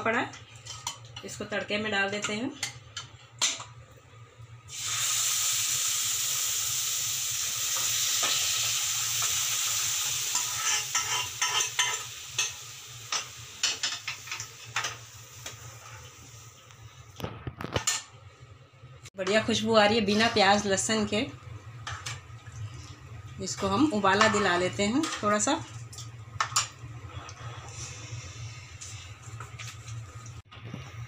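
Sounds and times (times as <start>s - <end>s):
hot oil sizzling and crackling: 4.6s - 18.1s.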